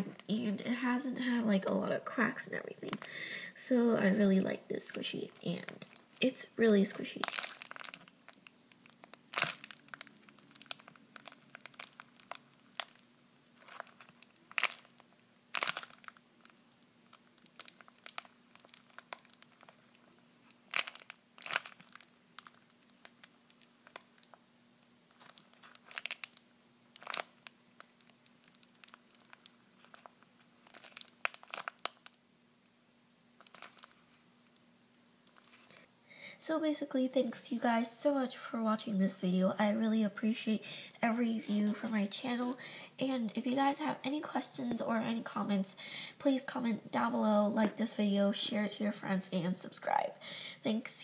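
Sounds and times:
faint low hum: 0.0s - 51.0s
plastic bag crinkling: 4.8s - 24.4s, 25.1s - 32.2s, 33.4s - 34.6s, 35.2s - 35.9s.

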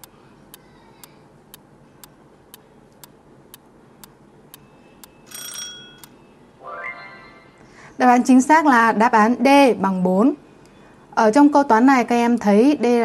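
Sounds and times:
short bell-like ring: 4.6s - 6.1s.

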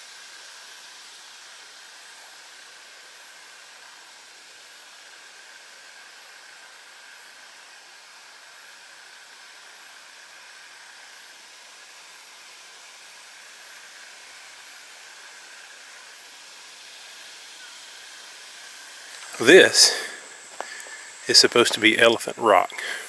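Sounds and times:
outdoor background hiss: 0.0s - 23.0s
faint high drone: 19.0s - 23.0s.

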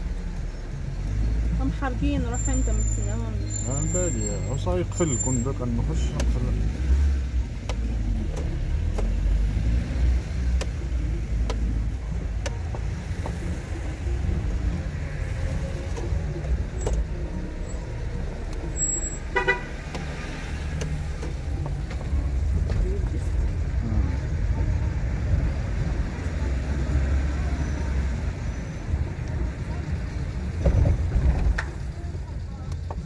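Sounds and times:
car engine and road noise: 0.0s - 33.0s
car horn toot: 19.0s - 19.8s.

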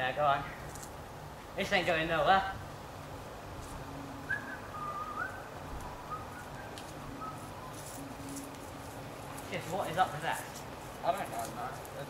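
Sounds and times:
low steady hum: 0.0s - 12.0s
faint whistled notes: 4.0s - 8.6s.

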